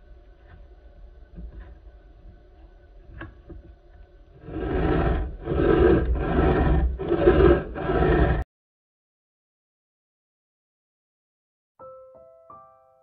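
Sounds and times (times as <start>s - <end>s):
hand file scraping metal: 4.4s - 8.4s.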